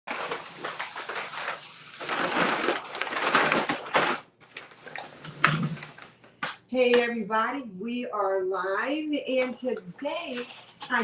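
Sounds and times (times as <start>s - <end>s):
paper bags crinkling: 0.1s - 6.2s.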